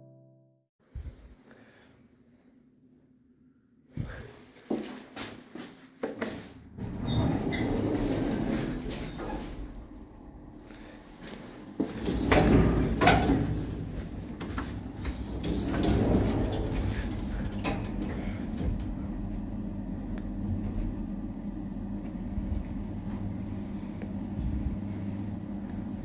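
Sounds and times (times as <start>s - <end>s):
lift drive hum: 6.6s - 26.0s
lift doors closing with clunks: 6.7s - 9.9s, 11.8s - 19.4s.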